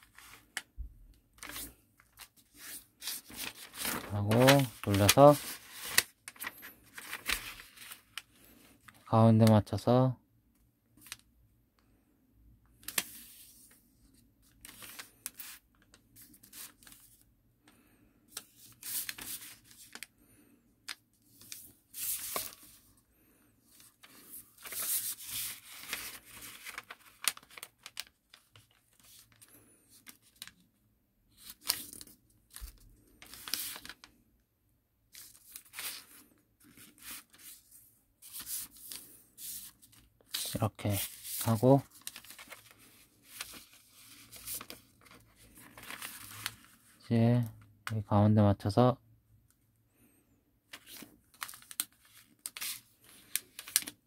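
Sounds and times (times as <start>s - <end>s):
paper crinkling and rustling: 0.0s - 9.6s, 12.8s - 17.3s, 18.3s - 20.1s, 20.9s - 23.0s, 23.7s - 30.7s, 31.3s - 34.1s, 35.1s - 47.6s, 50.7s - 54.0s
paper fold scraping: 1.4s - 8.3s, 18.3s - 20.1s, 21.3s - 22.9s, 23.7s - 30.5s, 31.4s - 34.0s, 35.2s - 47.0s, 50.7s - 54.0s.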